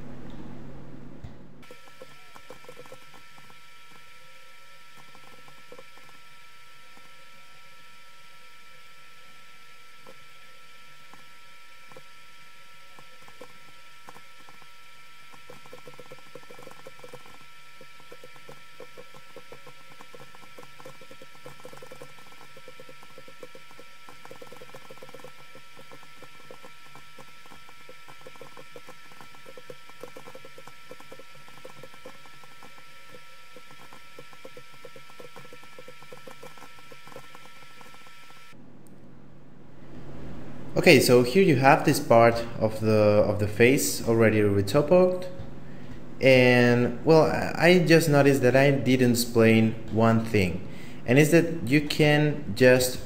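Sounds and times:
steady hum with tones: 0:00.0 - 0:53.0
mouse and keyboard clicking: 0:15.3 - 0:17.4, 0:18.1 - 0:38.4.

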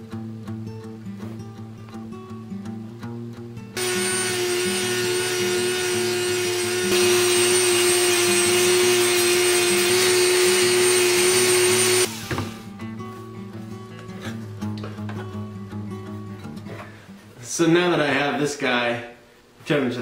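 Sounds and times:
acoustic guitar music: 0:00.0 - 0:03.8, 0:12.1 - 0:18.6
rotary tool buffing whine: 0:03.8 - 0:12.7.

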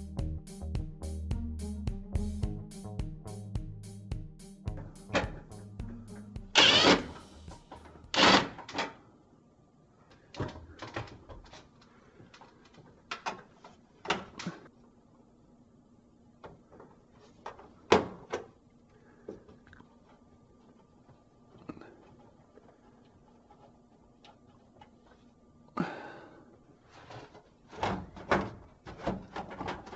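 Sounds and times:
impact driver burst: 0:06.6 - 0:08.6.

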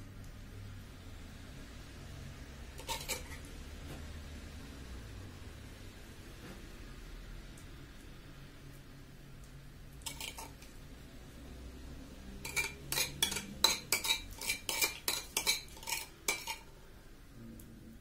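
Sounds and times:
metal spoon tapping a dish: 0:12.4 - 0:16.6.

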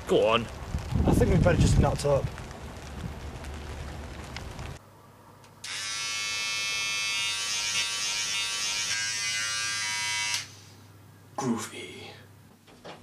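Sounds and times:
electric hair clipper buzzing: 0:05.6 - 0:10.5.

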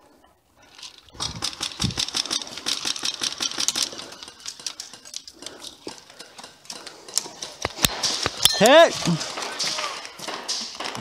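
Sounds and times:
airsoft guns firing: 0:01.2 - 0:05.8, 0:06.9 - 0:11.0.

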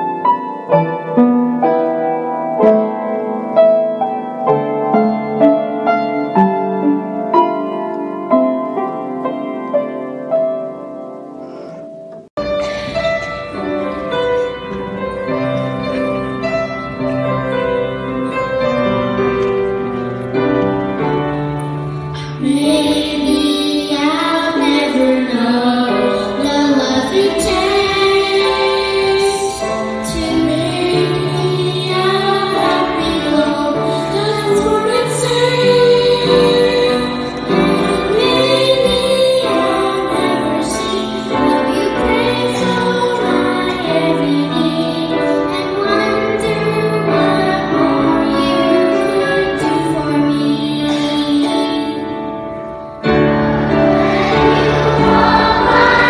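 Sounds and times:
keyboard accompaniment: 0:00.0 - 0:56.0
woman singing: 0:22.4 - 0:52.1.

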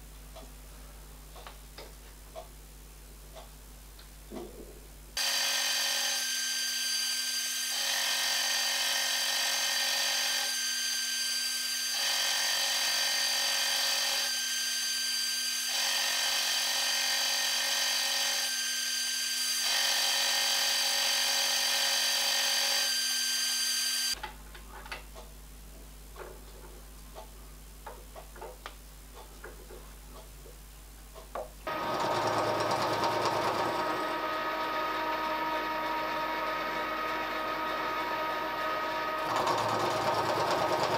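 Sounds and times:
milling machine motor whine: 0:05.2 - 0:24.2, 0:31.7 - 0:40.9
end mill cutting steel: 0:31.7 - 0:40.9.

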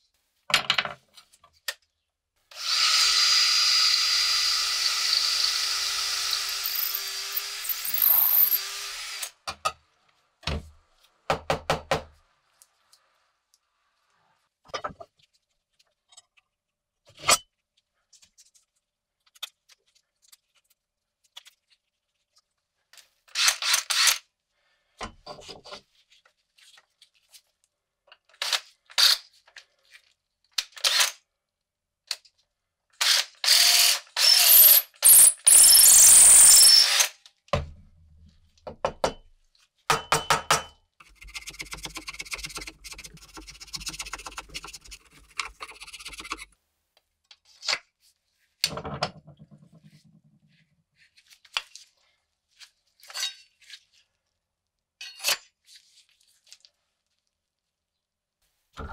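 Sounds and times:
drill boring into wood: 0:02.5 - 0:09.4, 0:33.0 - 0:37.1
rasping scratch: 0:06.4 - 0:08.6, 0:41.0 - 0:46.6
tools knocking and clicking: 0:06.5 - 0:08.6, 0:39.9 - 0:46.5.

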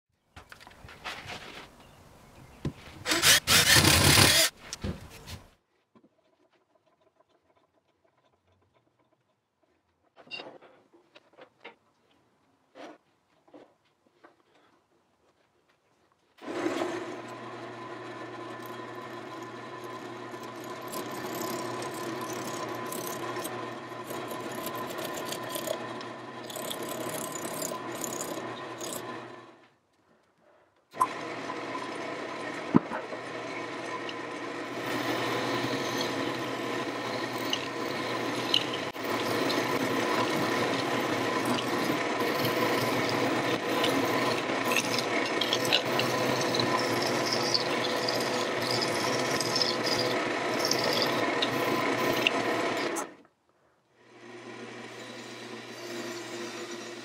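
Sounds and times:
turning tool cutting wood: 0:03.0 - 0:04.6, 0:16.4 - 0:29.6, 0:30.9 - 0:53.2, 0:54.0 - 0:57.0
wood lathe motor hum: 0:03.0 - 0:04.6, 0:16.4 - 0:29.6, 0:31.0 - 0:53.2, 0:54.0 - 0:57.0.

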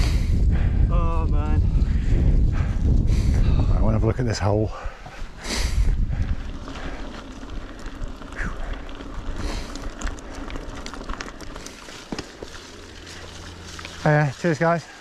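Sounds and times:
bike rattles and clicks: 0:00.0 - 0:15.0
tyres rumbling on stones and water: 0:06.6 - 0:15.0.

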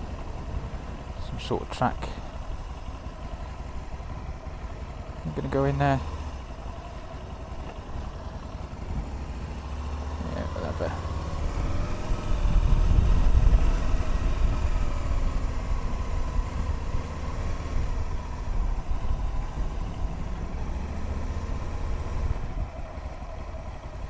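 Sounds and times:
motorcycle engine running: 0:00.0 - 0:24.0
wind rumbling on microphone: 0:12.0 - 0:14.6.

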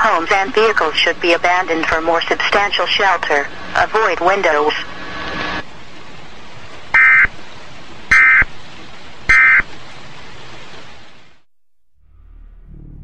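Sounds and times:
steady hiss: 0:00.0 - 0:11.5
screeching data bursts: 0:07.0 - 0:07.3
low music: 0:12.0 - 0:13.0.

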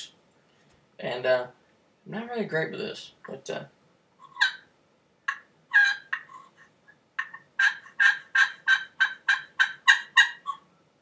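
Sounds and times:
turkey pot call yelps: 0:04.2 - 0:04.7, 0:05.3 - 0:10.7.

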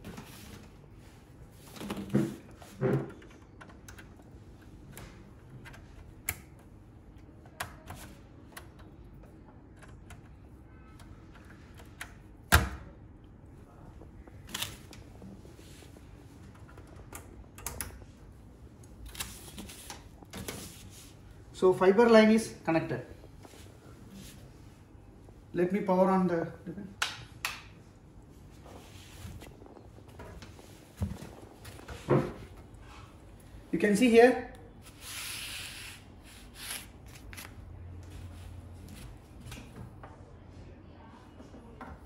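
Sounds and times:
cable handling noise: 0:14.0 - 0:18.2.

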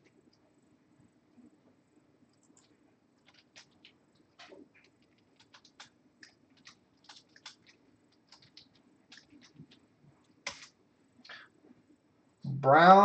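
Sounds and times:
typing on computer keyboard: 0:02.4 - 0:09.8.

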